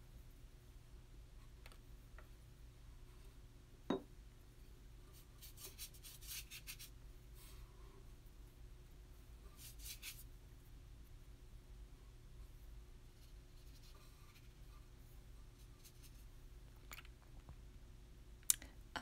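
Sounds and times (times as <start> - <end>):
scratchy strokes on paper: 5.1 - 7.6, 9.4 - 10.3, 12.5 - 16.3.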